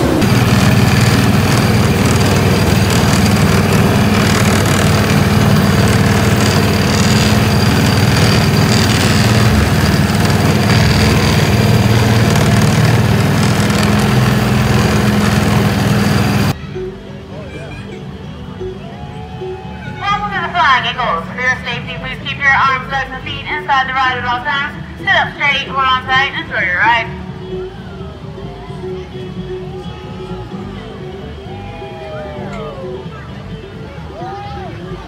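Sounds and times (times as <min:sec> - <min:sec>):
small engine running: 0:00.0 - 0:16.6.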